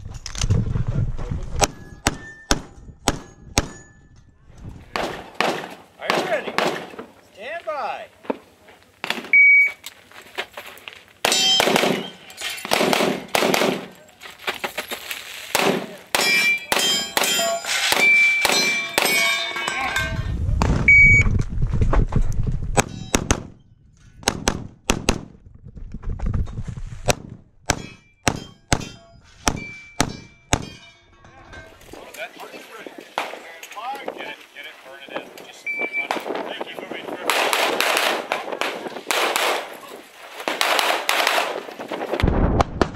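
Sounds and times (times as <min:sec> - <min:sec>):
metal targets clanging: 0:01.6 - 0:04.3, 0:11.2 - 0:20.4, 0:22.8 - 0:24.3, 0:27.7 - 0:34.0
rapid pistol shots: 0:05.0 - 0:06.9, 0:11.2 - 0:13.9, 0:24.2 - 0:25.3, 0:37.3 - 0:39.7, 0:40.5 - 0:41.7
shot timer beep: 0:09.4 - 0:09.8, 0:20.9 - 0:21.3, 0:35.6 - 0:36.1
low rumble: 0:20.0 - 0:27.6.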